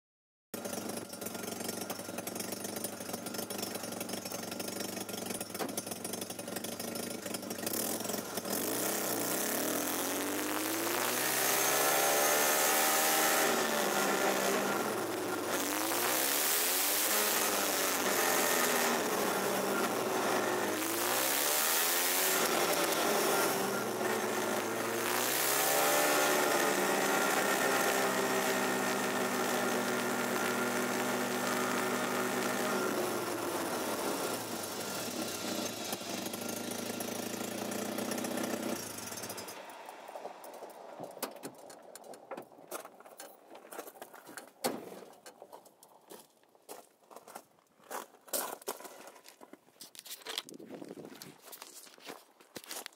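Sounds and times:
car engine running: 0:00.6 - 0:42.6
transmission whine: 0:08.1 - 0:37.0.

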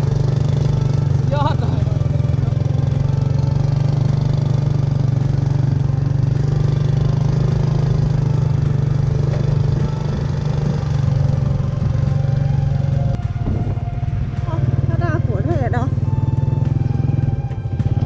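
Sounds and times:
motorcycle engine running: 0:00.0 - 0:18.0.

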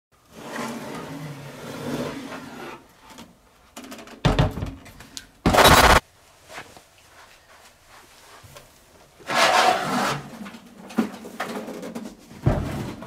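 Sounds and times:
loud burst of harsh noise: 0:05.5 - 0:06.0.

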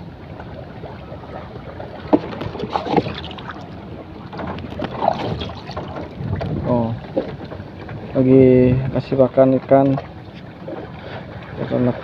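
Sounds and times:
wind buffeting microphone: 0:02.2 - 0:09.8.

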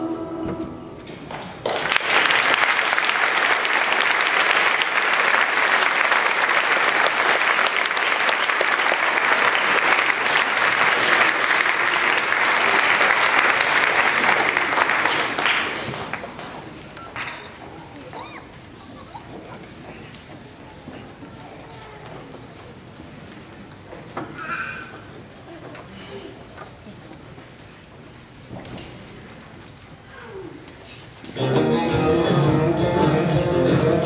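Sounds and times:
audience applauding: 0:01.3 - 0:17.6.

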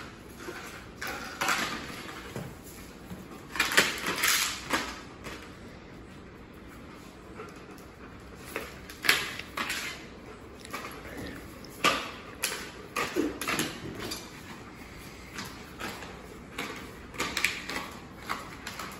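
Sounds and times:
claws clicking on tile floor: 0:00.0 - 0:05.6, 0:07.4 - 0:18.9.

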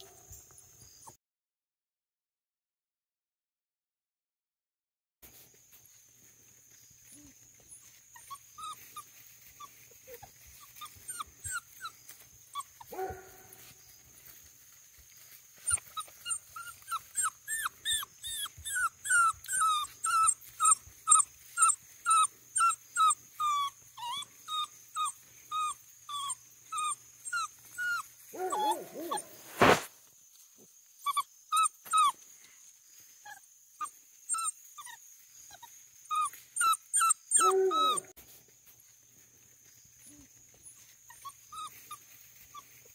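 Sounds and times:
puppy whining: 0:07.1 - 0:13.3, 0:15.6 - 0:29.7, 0:31.0 - 0:32.2, 0:33.2 - 0:38.2, 0:40.0 - 0:42.6.

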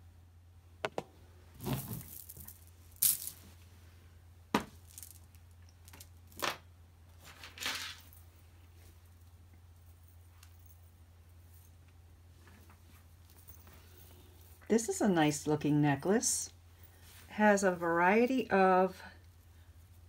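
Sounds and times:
beads and jewelry clinking: 0:01.6 - 0:03.6, 0:04.8 - 0:06.5, 0:12.4 - 0:18.8.

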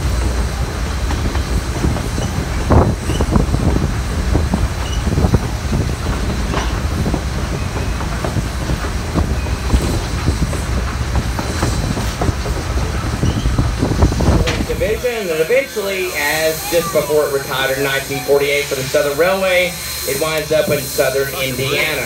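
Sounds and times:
train wheels rumbling on rails: 0:00.0 - 0:22.0
faint wheel squeals: 0:13.1 - 0:13.7.

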